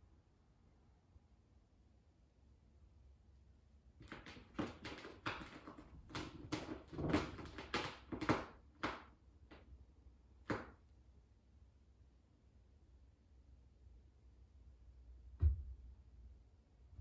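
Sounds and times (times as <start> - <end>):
cat scratching with claws: 4.0 - 9.0.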